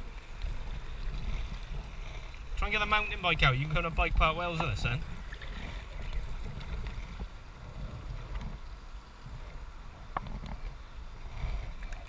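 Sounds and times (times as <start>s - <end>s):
faint water noise: 0.0s - 12.0s
wind on microphone: 0.0s - 12.0s.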